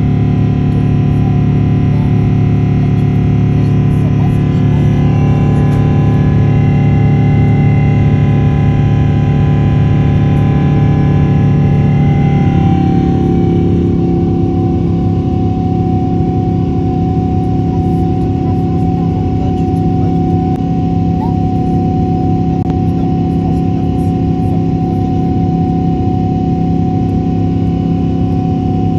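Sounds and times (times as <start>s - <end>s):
jet engines rumbling: 0.0s - 28.9s
thin steady whine: 0.0s - 28.9s.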